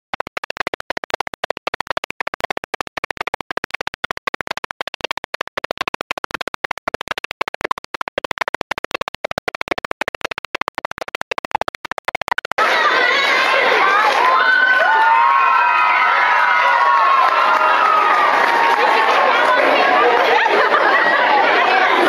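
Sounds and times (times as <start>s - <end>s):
stuttering cheerleading music: 0.0s - 15.0s.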